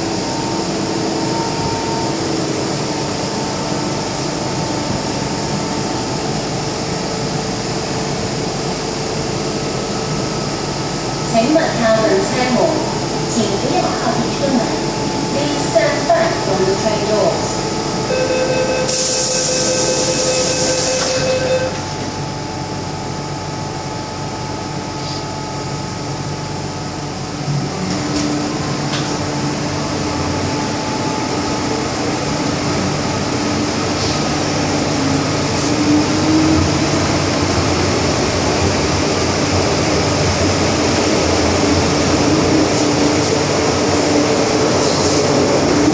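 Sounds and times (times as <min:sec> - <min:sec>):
train door warning tone: 0:00.0 - 0:05.3, 0:18.0 - 0:22.1
train motor whine: 0:18.1 - 0:22.1.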